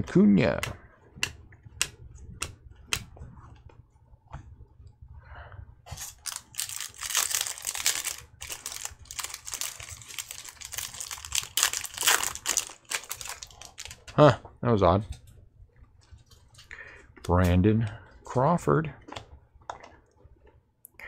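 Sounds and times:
foil wrapper crinkling and tearing: 0:05.9 - 0:14.1.

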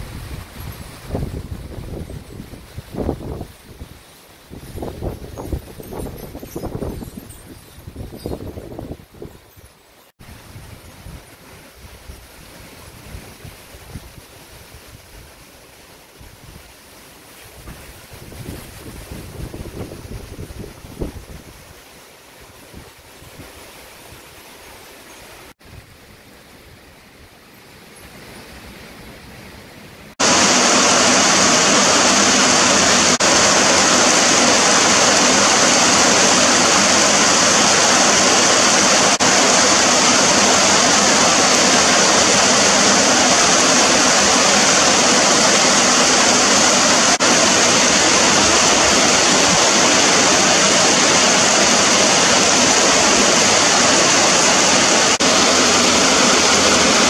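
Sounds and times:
wind through trees: 0:00.0 - 0:57.0
heavy rain downpour: 0:30.2 - 0:57.0.

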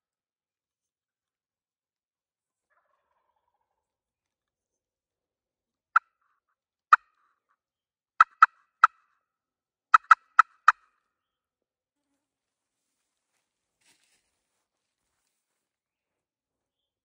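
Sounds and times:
turkey call clucks: 0:06.9 - 0:07.2, 0:08.2 - 0:09.0, 0:09.9 - 0:10.8.

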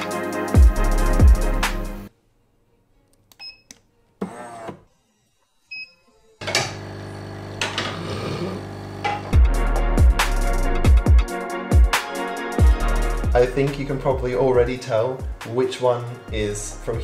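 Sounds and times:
background music: 0:00.0 - 0:06.8, 0:09.1 - 0:17.0
espresso machine humming: 0:06.4 - 0:09.4.

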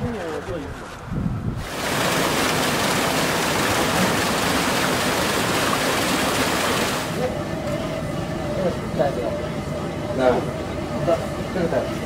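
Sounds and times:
water gushing down stone chute: 0:01.6 - 0:07.2.

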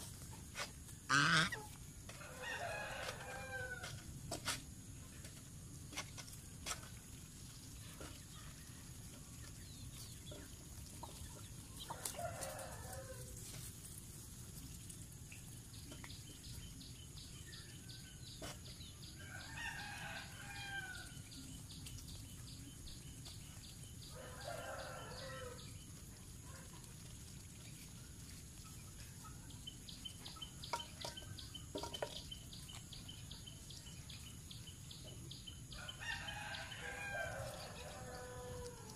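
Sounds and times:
rooster crowing: 0:02.2 - 0:03.9, 0:12.0 - 0:13.3, 0:19.2 - 0:21.1, 0:24.1 - 0:25.6, 0:35.8 - 0:38.9.

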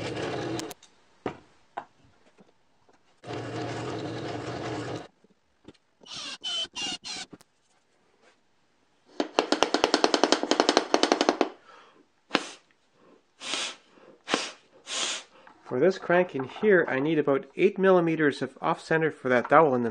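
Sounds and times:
drill press running: 0:00.0 - 0:00.7, 0:03.2 - 0:05.1
cordless drill driving screws: 0:06.0 - 0:07.4.

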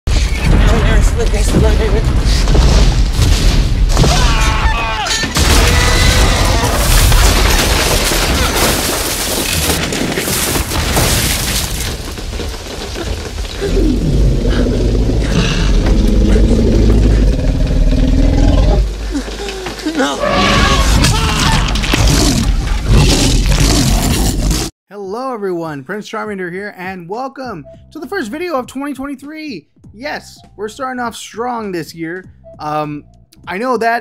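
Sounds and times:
heavy booms: 0:00.1 - 0:04.6
wood crashing and splintering: 0:00.1 - 0:14.5, 0:18.7 - 0:24.3
rain: 0:12.2 - 0:15.8, 0:16.8 - 0:20.2.

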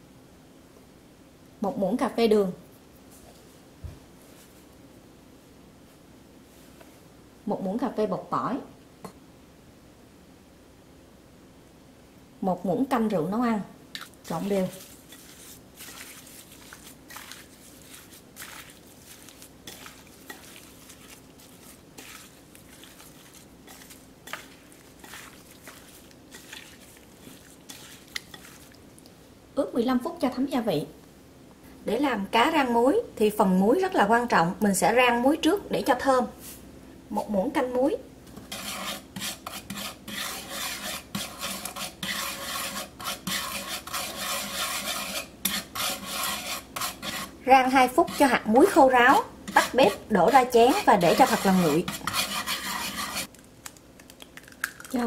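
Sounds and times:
wet squishes and rustles: 0:13.9 - 0:29.2
salt scraped in a pan with chopsticks: 0:14.3 - 0:28.8, 0:38.5 - 0:48.9, 0:49.5 - 0:53.3.

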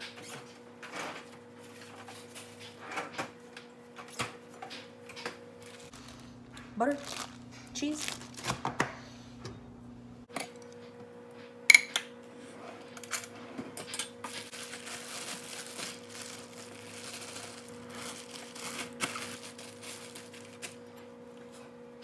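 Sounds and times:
packages rustling: 0:05.6 - 0:08.7, 0:14.4 - 0:21.0.

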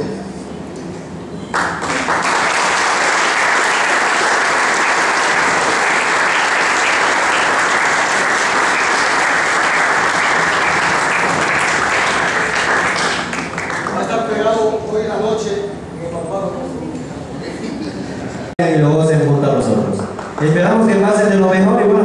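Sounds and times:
audience applauding: 0:01.5 - 0:14.2, 0:20.0 - 0:20.6.

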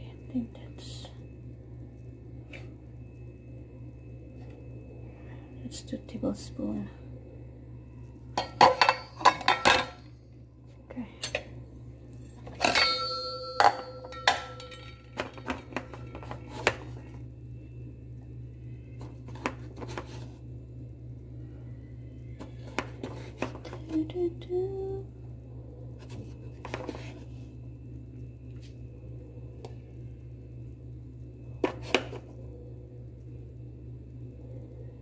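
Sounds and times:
steady low hum: 0:00.0 - 0:35.0
metal bowl ringing: 0:08.4 - 0:10.0, 0:12.6 - 0:15.2.

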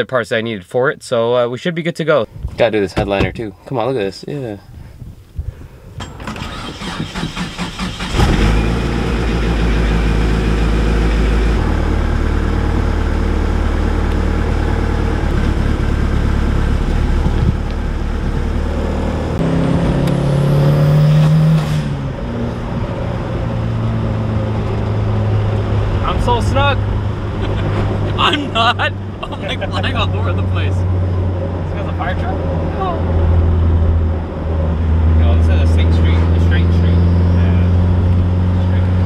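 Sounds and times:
car engine cranking: 0:06.0 - 0:21.7
car engine running and revving: 0:07.9 - 0:39.0.

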